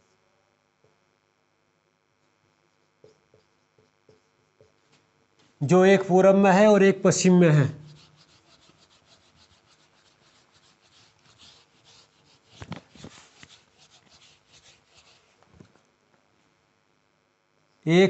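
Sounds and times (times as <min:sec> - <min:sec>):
eraser rubbing on whiteboard: 0:07.8 - 0:15.5.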